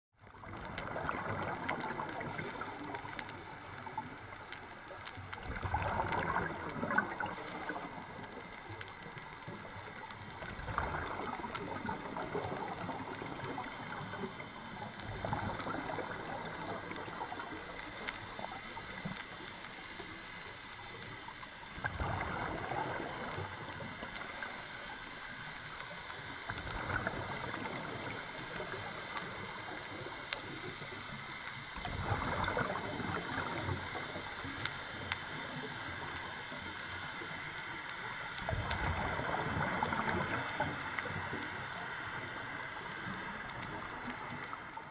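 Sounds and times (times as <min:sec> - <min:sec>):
underwater hiss: 0:00.4 - 0:44.9
bubbling exhaust: 0:05.3 - 0:19.2, 0:21.8 - 0:24.8, 0:31.8 - 0:34.3.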